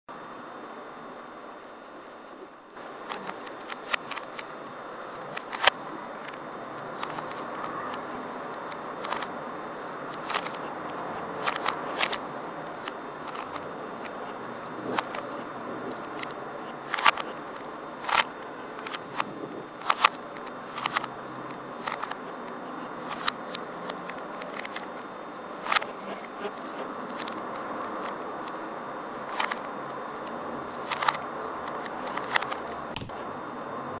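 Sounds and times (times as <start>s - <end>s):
plastic puzzle cube clicks: 9.0s - 9.3s, 10.1s - 10.6s, 30.8s - 33.1s.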